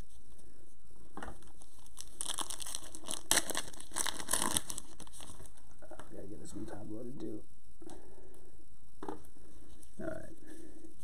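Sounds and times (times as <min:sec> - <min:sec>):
foil wrapper crinkling and tearing: 0:01.4 - 0:05.6.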